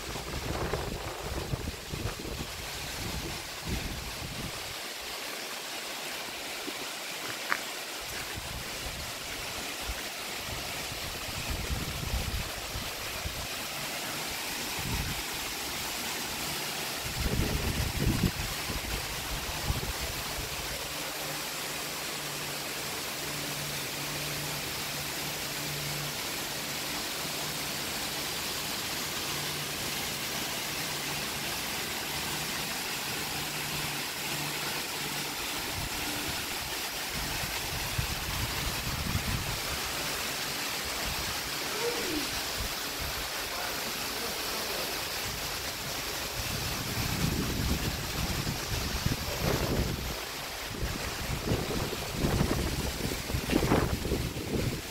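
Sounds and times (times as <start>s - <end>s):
waterfall rushing: 0.0s - 54.9s.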